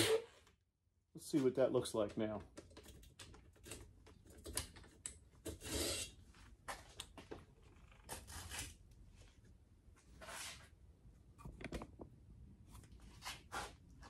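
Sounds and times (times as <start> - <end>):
rustles and scrapes of handling: 8.0 - 10.8, 12.6 - 14.0.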